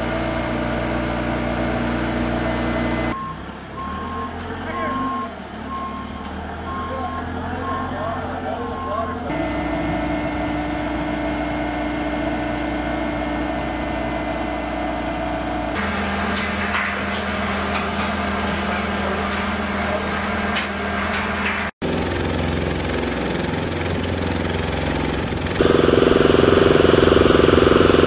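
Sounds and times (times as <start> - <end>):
engine humming: 0.0 - 28.0
constant whine: 9.3 - 28.0
lower engine drone: 9.3 - 28.0.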